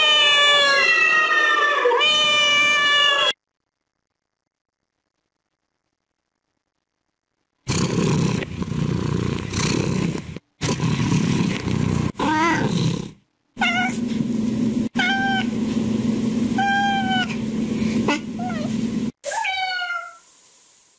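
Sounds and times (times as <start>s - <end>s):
cat meowing: 0.0s - 3.4s, 13.6s - 14.0s, 15.0s - 15.5s, 16.6s - 17.4s, 18.4s - 20.2s
background noise hiss: 0.0s - 13.6s, 19.1s - 20.9s.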